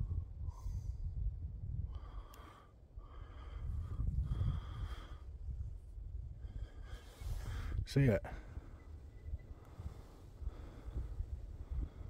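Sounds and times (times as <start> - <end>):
heavy breathing: 2.0 - 5.3, 9.6 - 12.0.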